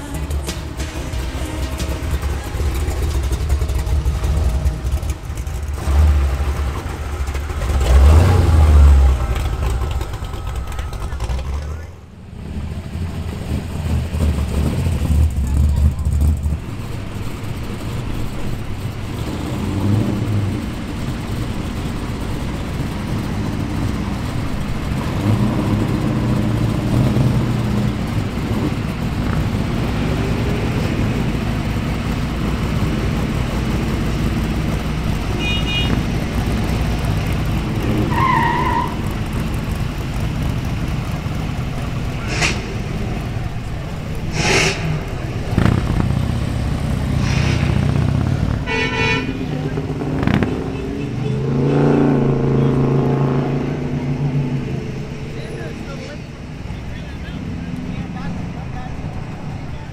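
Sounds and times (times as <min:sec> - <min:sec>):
car engines rumbling and revving: 0:00.0 - 0:59.9
motorcycle engine: 0:00.0 - 0:59.9
short sharp noises: 0:44.3 - 0:45.2, 0:47.2 - 0:48.0.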